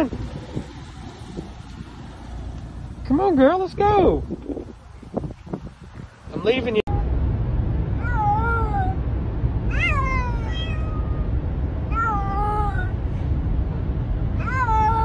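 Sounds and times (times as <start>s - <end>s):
car rumble: 0.0s - 15.0s
cat meowing: 9.7s - 12.9s.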